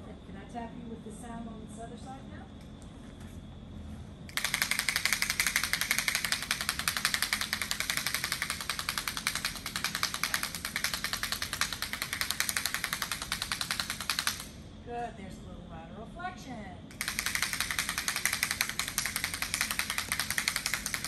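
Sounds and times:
rapid even ticking device: 4.3 - 14.6, 16.9 - 21.0.

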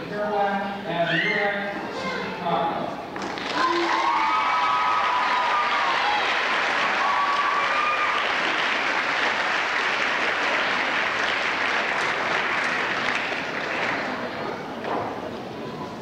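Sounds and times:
audience applauding: 3.2 - 14.3.

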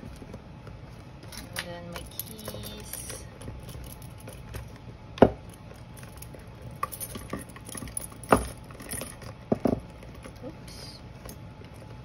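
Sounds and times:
keys clinking: 1.2 - 4.8, 5.4 - 10.5.

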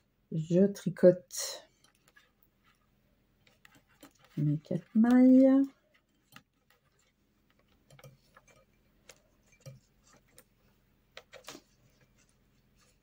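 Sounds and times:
knitting needles clicking: 3.4 - 11.8.

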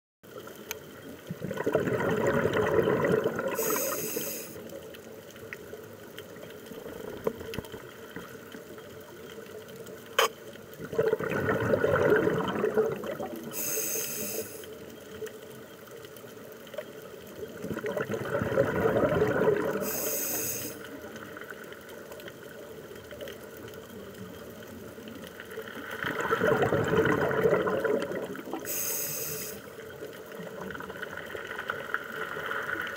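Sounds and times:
steady underwater hiss: 0.3 - 32.9
exhaled bubbles gurgling: 1.0 - 4.9, 10.6 - 14.6, 17.0 - 32.9
regulator hiss: 3.5 - 4.8, 13.5 - 14.9, 19.8 - 21.1, 28.5 - 29.9.

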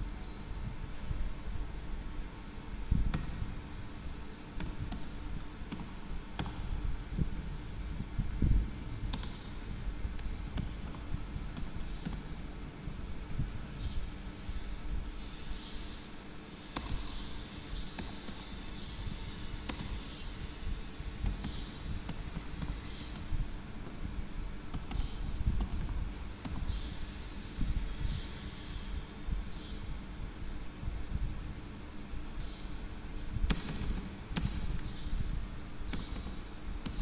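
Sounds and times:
steady low hum: 0.0 - 37.0
keyboard key clicks: 33.5 - 34.9.

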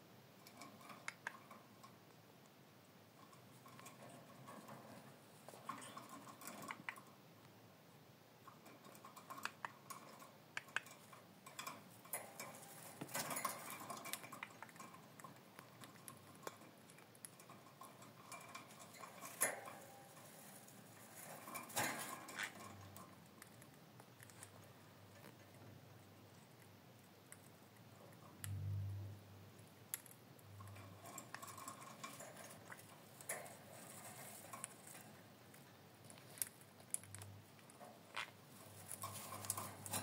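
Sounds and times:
bird beak tapping on cage bars: 0.4 - 2.0, 3.3 - 7.1, 8.4 - 23.6, 30.0 - 35.7
rustling scrapes: 18.5 - 23.1, 38.0 - 40.0.

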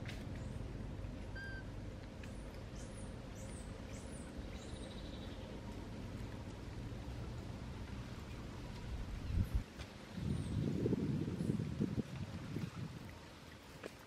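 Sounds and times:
low background rumble: 0.0 - 13.4
bird chirping: 2.2 - 5.6.

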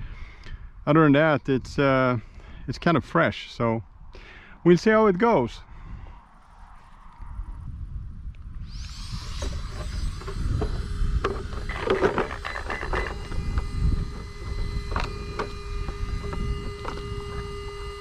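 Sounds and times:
steady thin whine: 1.8 - 18.0
wind rumble on microphone: 5.6 - 18.0
toy truck handling clicks and clatter: 11.3 - 13.3.

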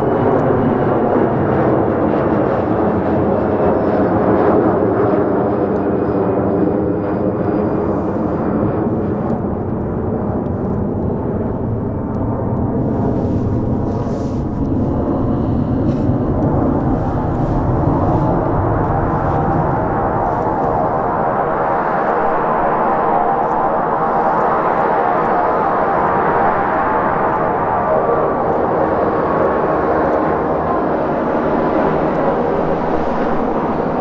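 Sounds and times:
jet engine roar: 0.0 - 34.0
faint whining tones: 7.2 - 25.5.

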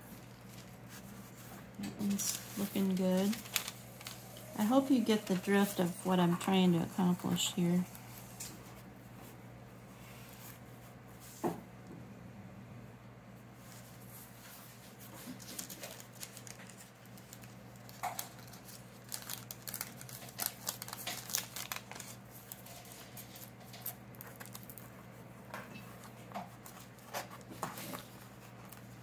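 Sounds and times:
thin paper pages rustling: 0.0 - 8.8, 13.7 - 25.0.

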